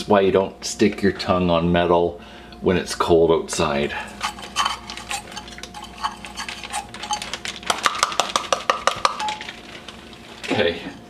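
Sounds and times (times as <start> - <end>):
frozen fruit clinking on metal: 4.0 - 11.0.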